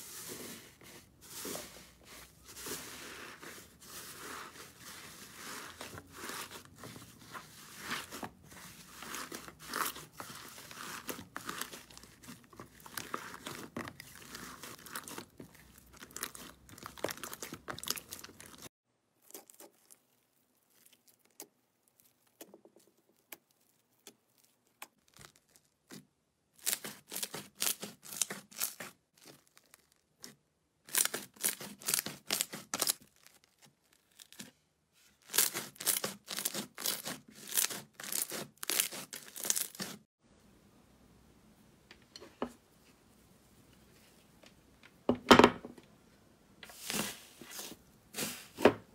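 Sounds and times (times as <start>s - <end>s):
slime crackling and popping: 8.9s - 26.0s, 35.3s - 40.0s
crunchy slime crackles and pops: 10.8s - 26.0s, 26.6s - 34.5s.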